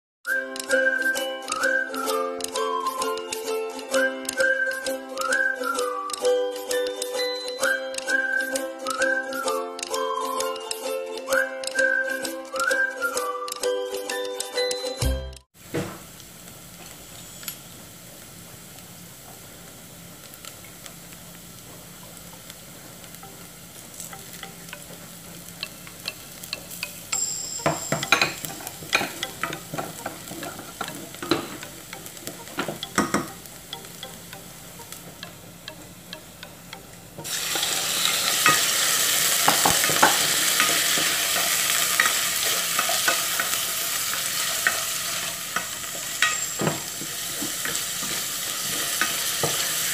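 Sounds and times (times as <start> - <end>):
food frying in oil: 15.6 - 49.9
spoon scraping and tapping pan: 23.1 - 49.9.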